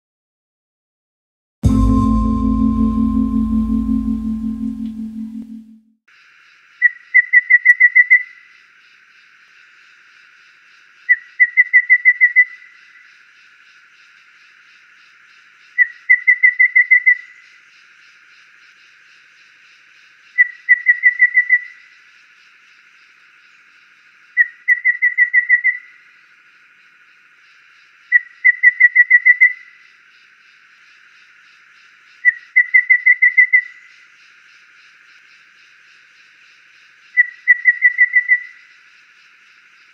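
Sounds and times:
bird singing whistled notes: 6.8s - 8.4s, 37.1s - 38.7s.

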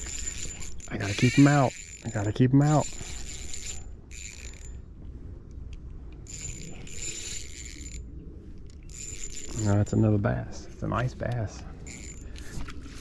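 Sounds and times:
fishing reel whirring: 0.0s - 4.8s, 6.2s - 10.0s, 11.8s - 12.6s.

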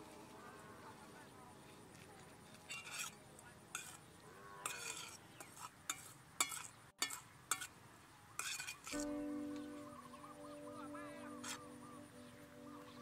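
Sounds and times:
metal spoon scraping steel bowl: 2.7s - 7.7s, 8.4s - 9.1s, 11.3s - 11.7s.

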